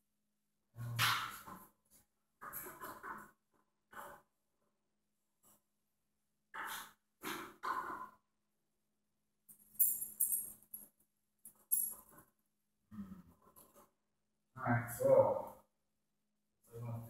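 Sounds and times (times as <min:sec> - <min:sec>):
small metal parts jingling: 0:09.5 - 0:10.9, 0:11.5 - 0:12.1.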